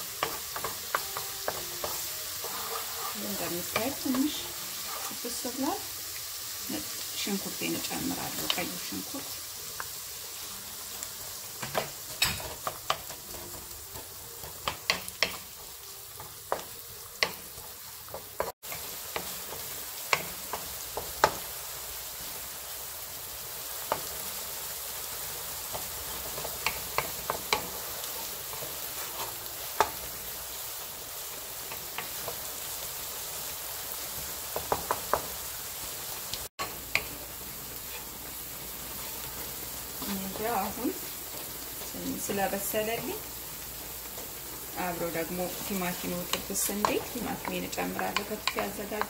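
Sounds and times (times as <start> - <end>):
onion sizzling in oil: 0.0 - 49.0
wooden spoon scraping pan: 1.5 - 5.2.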